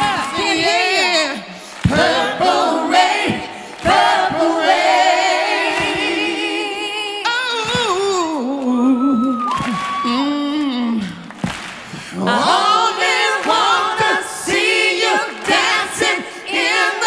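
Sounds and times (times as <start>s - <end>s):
backing choir singing: 0.0s - 7.3s, 12.1s - 17.0s
gospel lead singer: 0.0s - 17.0s.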